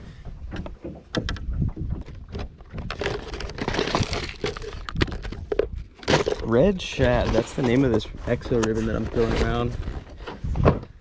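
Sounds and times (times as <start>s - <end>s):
plastic packaging crinkling and clicking: 2.8s - 6.5s.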